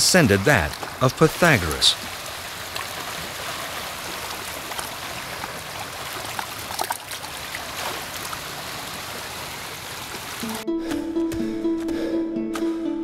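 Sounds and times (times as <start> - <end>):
water trickling over rocks: 0.5 - 10.6
small splashes and drips: 1.9 - 10.5.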